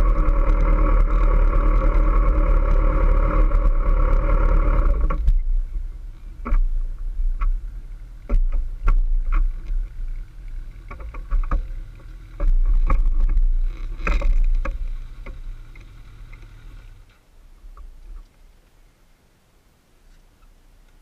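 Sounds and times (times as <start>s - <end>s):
motorcycle engine idling rumble: 0.0s - 21.0s
knocks and clicks: 8.2s - 9.8s, 10.8s - 16.5s.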